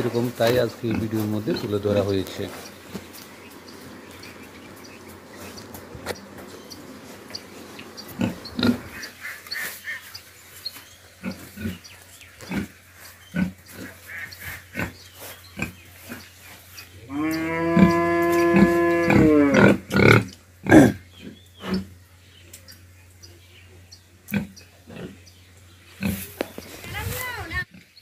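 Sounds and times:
pigs grunting: 0:00.0 - 0:02.7, 0:07.3 - 0:09.7, 0:11.2 - 0:22.0, 0:24.3 - 0:26.4
pig squealing: 0:17.1 - 0:21.9.

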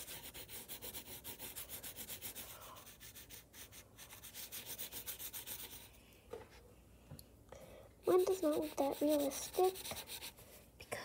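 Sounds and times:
pencil shading on paper: 0:00.0 - 0:05.9, 0:08.1 - 0:10.4.

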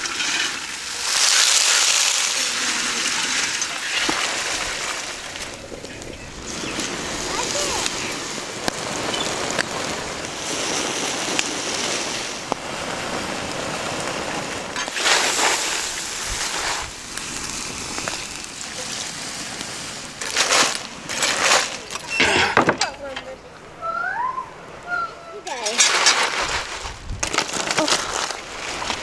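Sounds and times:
water boiling and bubbling: 0:00.0 - 0:22.8.

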